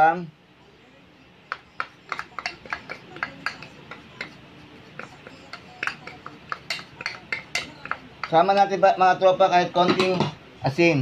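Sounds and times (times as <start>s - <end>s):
metal spoon tapping plastic cup: 1.5s - 8.8s.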